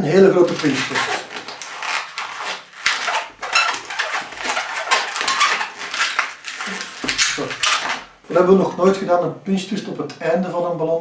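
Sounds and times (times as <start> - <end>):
balloon squeaking and rubbing: 0.0 - 8.3.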